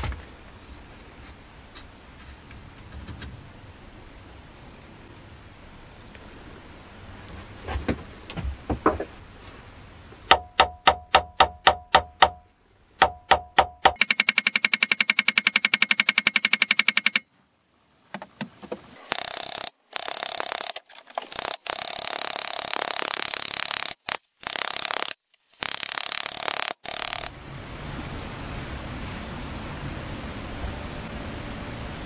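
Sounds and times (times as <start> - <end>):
hammer striking metal: 10.3 - 17.2
harsh rasping noise: 19.0 - 27.3.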